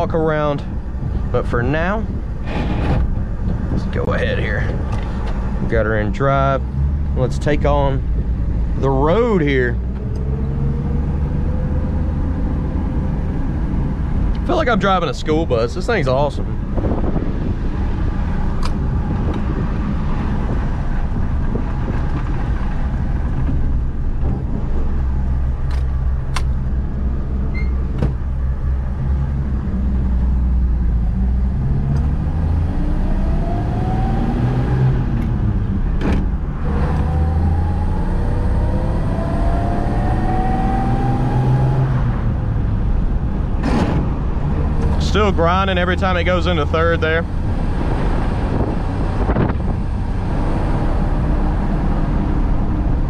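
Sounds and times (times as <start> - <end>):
truck engine accelerating: 0.0 - 53.0.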